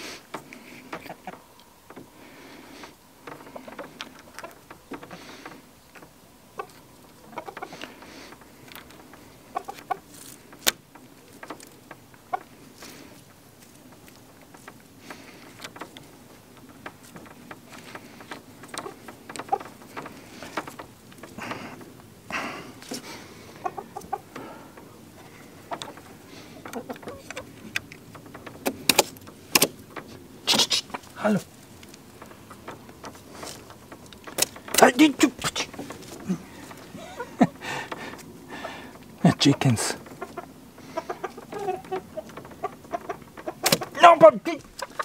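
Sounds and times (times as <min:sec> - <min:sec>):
chickens clucking: 0:00.0 - 0:45.0
cable connectors clicking: 0:03.3 - 0:22.1, 0:22.8 - 0:38.4.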